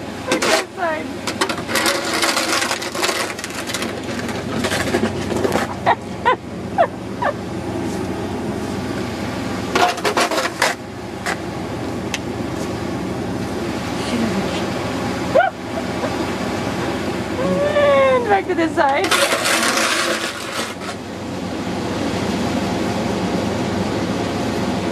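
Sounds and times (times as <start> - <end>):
snow shovel scraping stone steps: 19.0 - 21.0.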